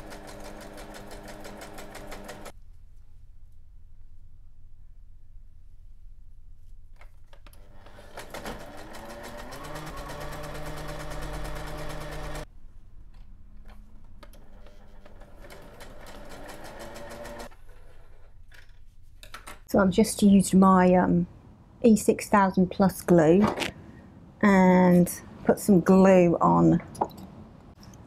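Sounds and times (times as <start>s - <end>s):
sewing machine stitching paper: 0.0s - 2.5s, 7.6s - 12.4s, 14.4s - 18.3s.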